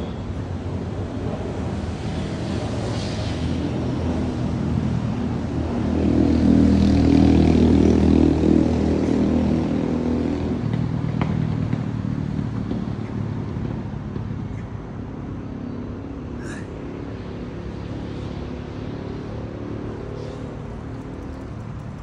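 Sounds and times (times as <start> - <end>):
vehicle engine passing by: 1.8 - 12.8.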